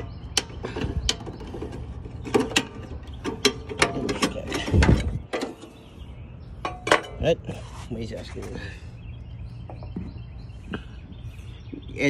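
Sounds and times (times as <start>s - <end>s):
metallic clicks and clanks: 0.0s - 5.7s.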